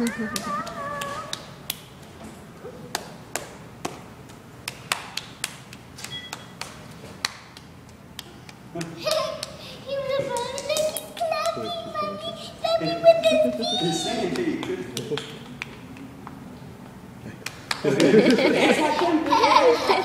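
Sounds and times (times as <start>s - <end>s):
child clapping hands: 0.0s - 1.9s, 2.9s - 9.6s, 10.2s - 11.7s, 14.3s - 16.4s, 17.4s - 18.2s.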